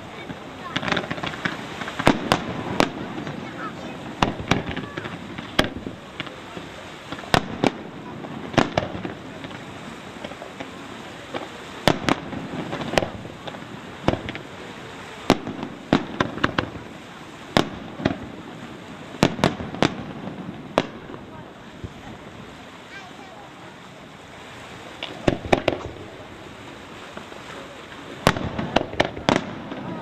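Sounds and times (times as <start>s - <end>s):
firework shells bursting: 0.0s - 14.5s, 15.3s - 16.8s, 25.0s - 26.2s, 28.0s - 30.0s.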